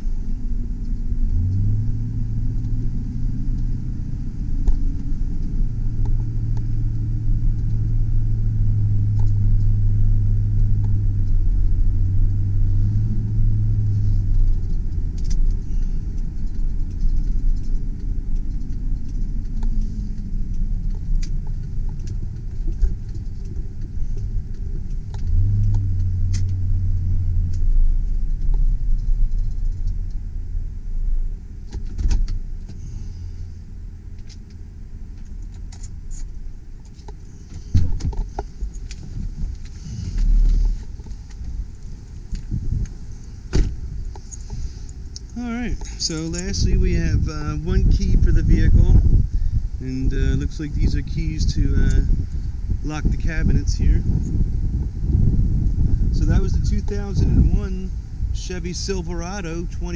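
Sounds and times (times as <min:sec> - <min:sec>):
road rumble: 0:00.0 - 0:59.9
truck engine drone: 0:00.0 - 0:59.9.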